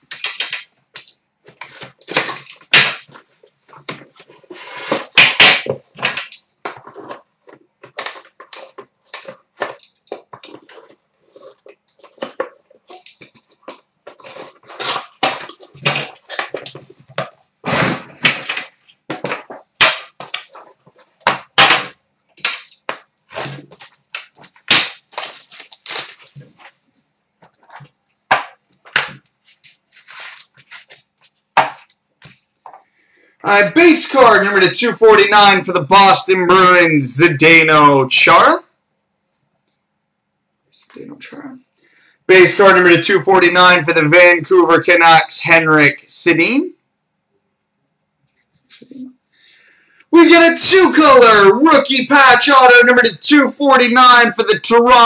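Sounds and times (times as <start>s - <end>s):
plastic shrink wrap crinkling: 22.4s - 26.8s.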